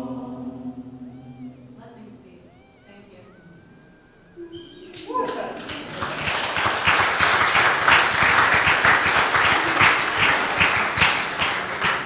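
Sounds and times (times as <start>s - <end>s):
people applauding: 4.5s - 12.0s.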